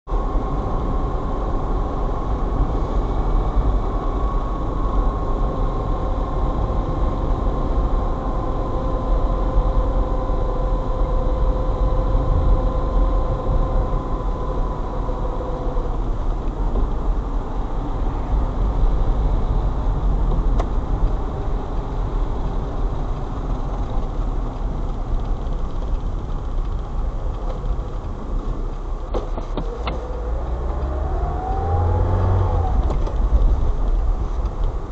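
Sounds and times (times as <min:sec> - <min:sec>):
car engine and tyres rumbling: 0:00.0 - 0:34.9.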